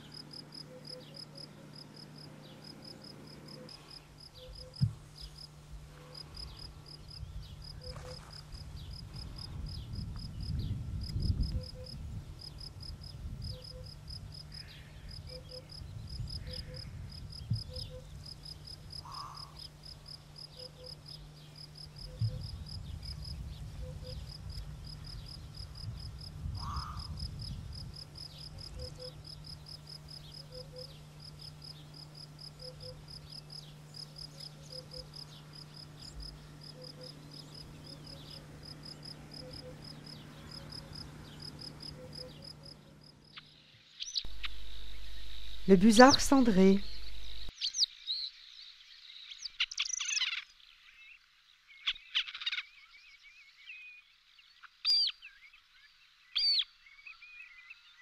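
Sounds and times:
crickets chirping: 0:00.0 - 0:47.6
low rumble: 0:44.3 - 0:45.7.

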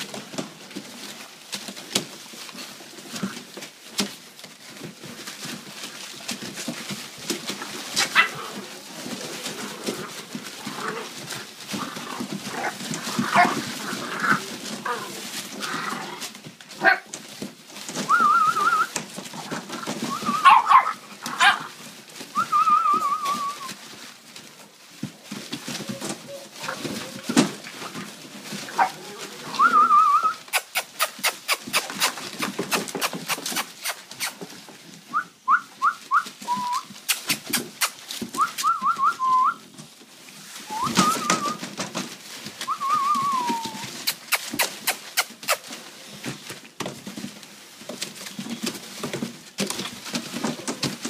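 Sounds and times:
rustle of shredded paper: 0:00.0 - 0:51.0
puppies yipping and whimpering: 0:19.9 - 0:21.7, 0:28.4 - 0:34.3, 0:42.7 - 0:45.8
puppy yelps: 0:20.1 - 0:21.7.

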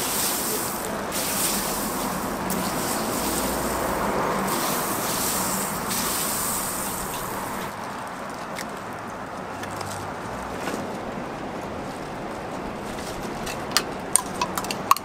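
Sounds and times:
butter sizzling on griddle: 0:00.0 - 0:07.7.

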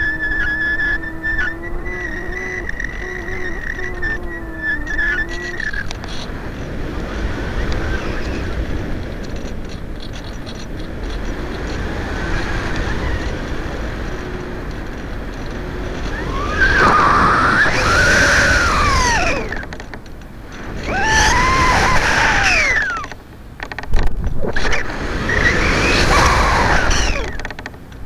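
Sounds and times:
rumbling wind noise: 0:00.0 - 0:28.0
whine rising and falling: 0:12.7 - 0:19.9, 0:20.6 - 0:23.2, 0:24.3 - 0:27.6.

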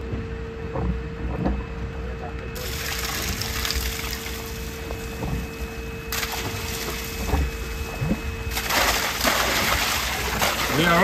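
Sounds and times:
concrete pump humming: 0:00.0 - 0:11.0
wet slurry gush: 0:02.6 - 0:05.2, 0:06.1 - 0:11.0.

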